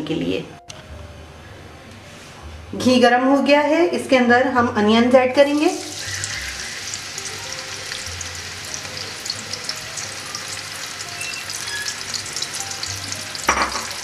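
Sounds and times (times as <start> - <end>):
onions sizzling in hot fat: 5.5 - 14.0.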